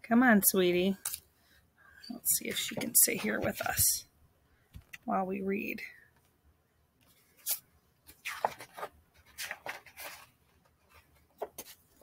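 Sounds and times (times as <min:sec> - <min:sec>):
book pages rustling: 0:07.0 - 0:12.0.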